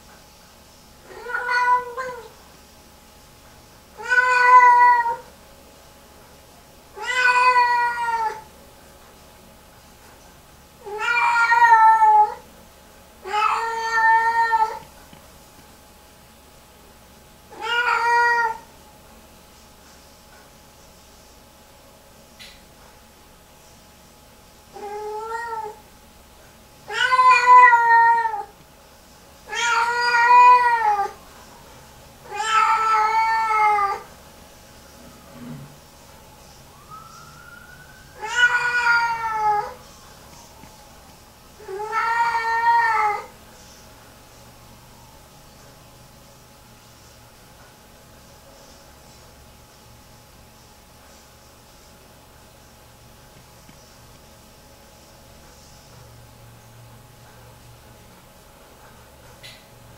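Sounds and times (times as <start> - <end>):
cat yowling: 1.1 - 2.3, 4.0 - 5.3, 7.0 - 8.5, 10.8 - 12.4, 13.2 - 14.8, 17.5 - 18.7, 24.8 - 25.8, 26.9 - 28.6, 29.5 - 31.2, 32.2 - 34.1, 36.8 - 39.8, 41.6 - 43.3.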